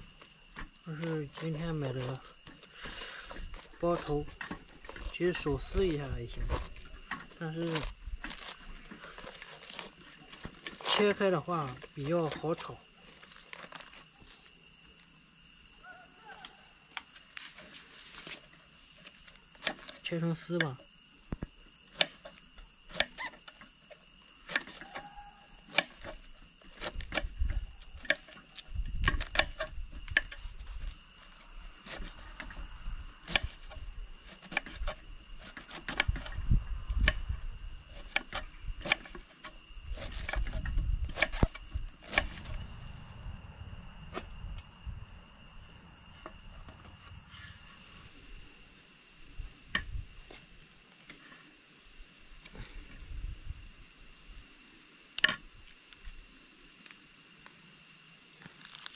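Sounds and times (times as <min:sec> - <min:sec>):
high-pitched whine: 0:42.3 - 0:48.4.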